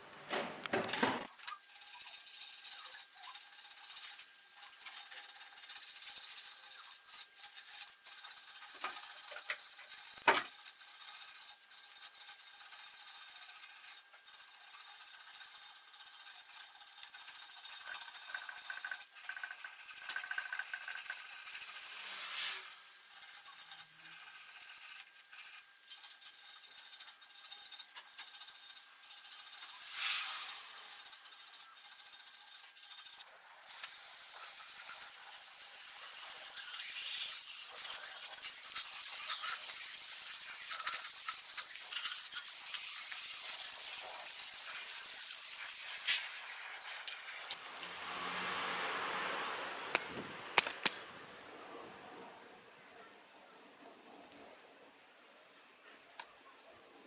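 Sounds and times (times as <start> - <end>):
small metal clicks and rattles: 23.1 - 29.8.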